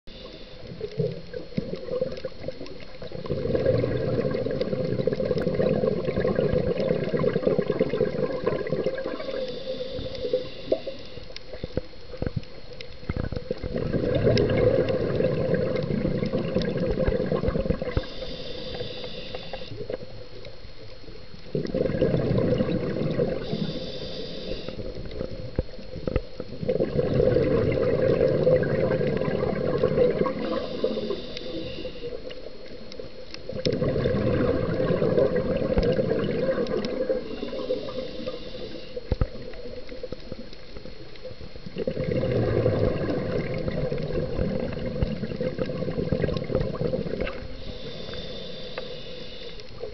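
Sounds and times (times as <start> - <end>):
bubbling underwater exhalations: 0.3 - 10.9, 13.1 - 20.1, 21.5 - 23.9, 24.7 - 32.7, 33.4 - 38.4, 41.6 - 48.2
hissing regulator inhalations: 9.0 - 11.6, 17.8 - 19.9, 23.2 - 25.2, 30.3 - 32.5, 36.7 - 39.4, 47.3 - 49.9.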